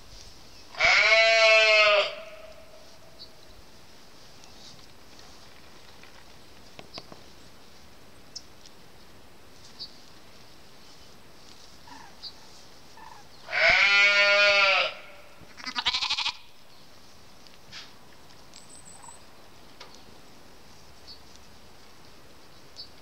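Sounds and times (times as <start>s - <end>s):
sheep bleating: 0.8s - 2.6s, 13.5s - 16.5s.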